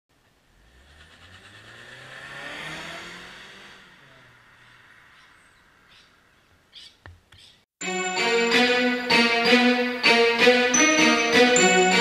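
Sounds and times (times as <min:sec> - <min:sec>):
car passing by: 0:00.5 - 0:06.4.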